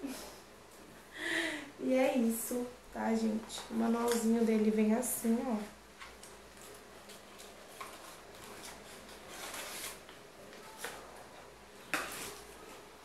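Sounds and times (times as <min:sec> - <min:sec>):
cardboard and paper rustling: 0:06.0 - 0:13.0.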